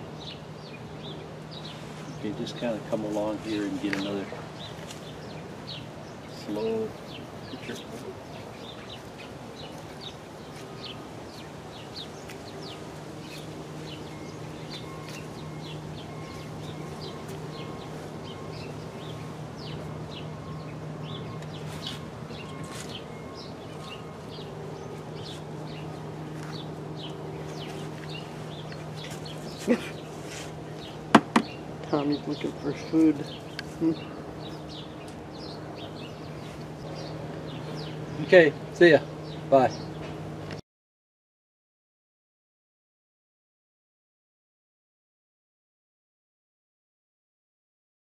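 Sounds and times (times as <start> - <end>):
small birds chirping: 0.0 - 40.6
steady low hum: 0.0 - 40.6
sharp knock: 31.1 - 31.6.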